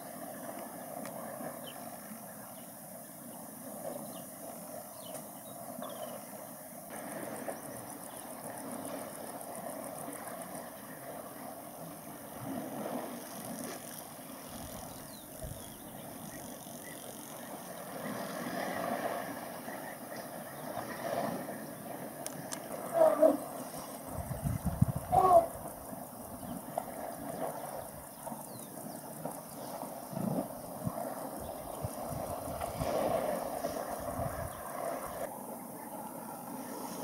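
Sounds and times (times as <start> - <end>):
elephants splashing in water: 17.4 - 24.2, 24.8 - 35.3.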